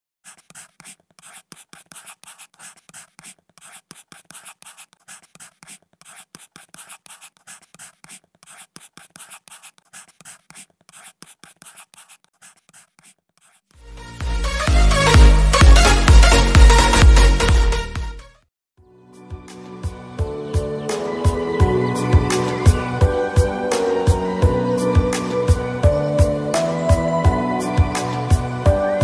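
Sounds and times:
pen scratching on paper: 0.2s - 13.7s.

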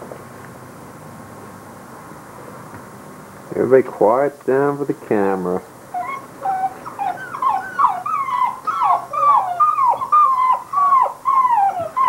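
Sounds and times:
puppies whining: 5.9s - 12.0s.

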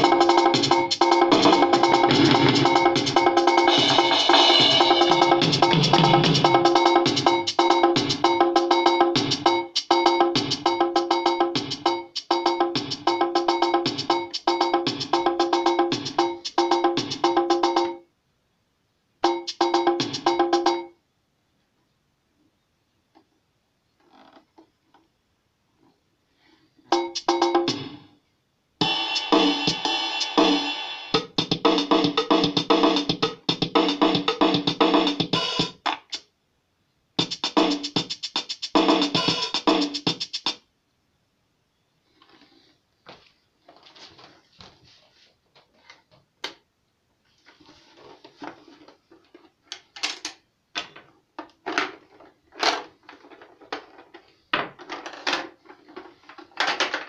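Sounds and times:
electronic drum rhythm patterns: 0.0s - 18.0s, 19.2s - 21.0s, 26.9s - 28.1s, 28.8s - 36.3s, 37.2s - 40.7s.

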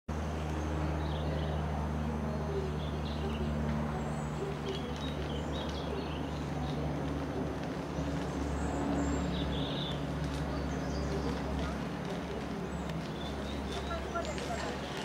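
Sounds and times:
light aircraft engine and propeller: 0.1s - 15.0s.

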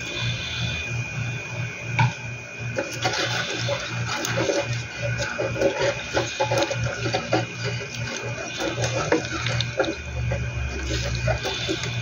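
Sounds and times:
wooden spatula stirring: 2.8s - 12.0s
curry sauce bubbling in pan: 3.8s - 12.0s.

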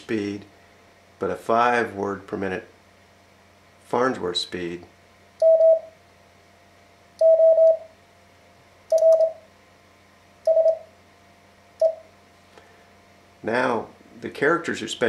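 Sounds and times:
morse code beeping: 5.4s - 5.9s, 7.2s - 7.9s, 8.9s - 9.4s, 10.5s - 10.8s, 11.8s - 12.0s.

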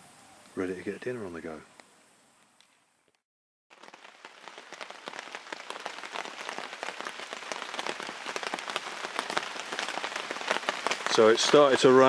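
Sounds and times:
rain pattering on a tarp: 3.1s - 12.0s.

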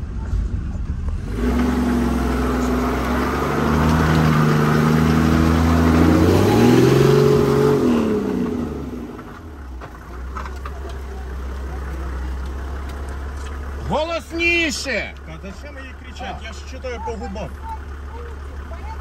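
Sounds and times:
engine revving from inside cabin: 0.9s - 9.2s.

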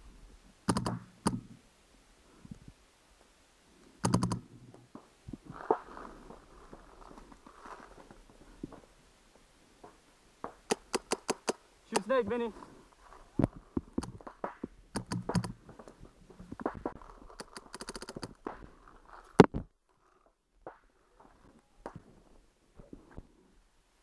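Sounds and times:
faint pops and clicks: 0.7s - 1.6s, 4.0s - 5.8s, 9.8s - 12.1s, 13.4s - 18.7s, 19.4s - 19.7s
paintball markers firing: 10.7s - 12.1s, 14.0s - 15.6s.

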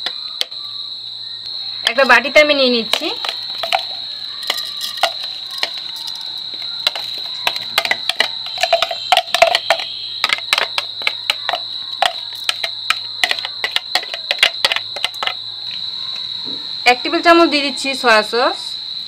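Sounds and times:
spoon tapping plastic bowl: 2.8s - 15.4s.

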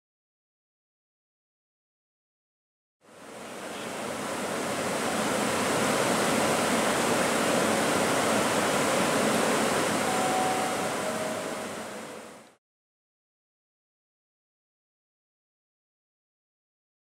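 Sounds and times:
locomotive blowers rushing: 6.1s - 12.5s.

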